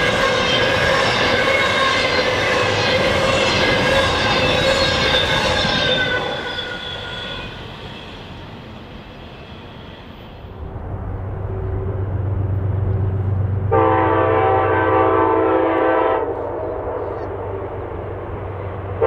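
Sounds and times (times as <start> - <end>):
train wheel squeal: 0.0 - 10.6
rumble of train wheels: 0.0 - 19.0.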